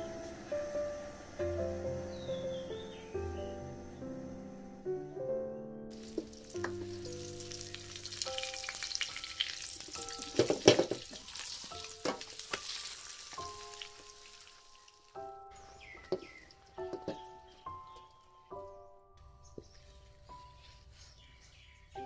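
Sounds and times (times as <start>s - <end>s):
omelet sizzling in hot oil: 5.9s - 17.1s
wooden spatula scraping a pan: 19.6s - 22.0s.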